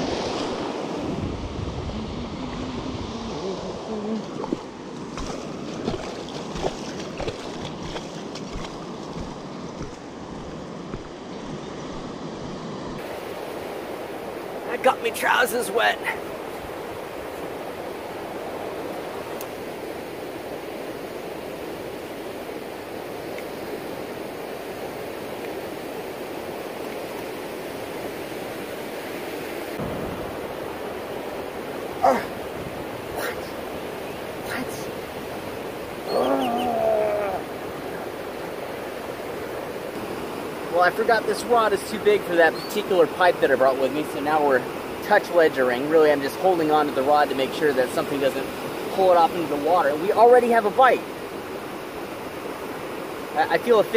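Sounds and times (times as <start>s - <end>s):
wind on microphone: 0.0s - 4.6s
surf washing over beach: 0.0s - 53.9s.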